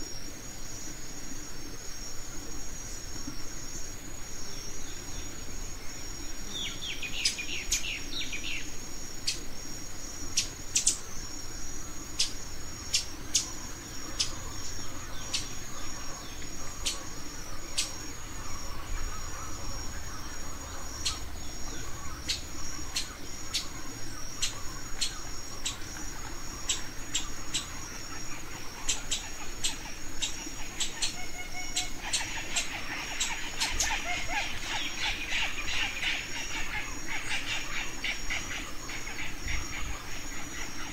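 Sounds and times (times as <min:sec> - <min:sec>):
high-pitched insect trill: 0:00.0 - 0:40.9
birds chirping: 0:12.1 - 0:40.9.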